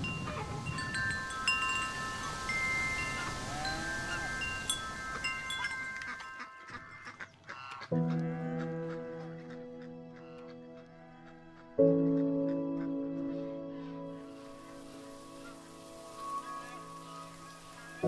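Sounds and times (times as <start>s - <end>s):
chimes ringing: 0.0s - 7.2s.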